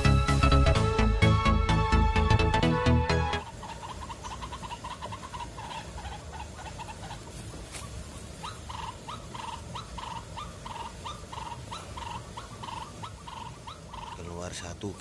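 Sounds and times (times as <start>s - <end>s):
waterhen croaking call: 3.4s - 15.0s.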